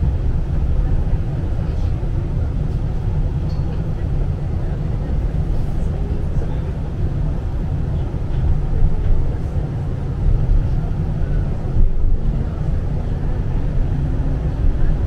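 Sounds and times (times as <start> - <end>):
tram rumbling along track: 0.0 - 15.0.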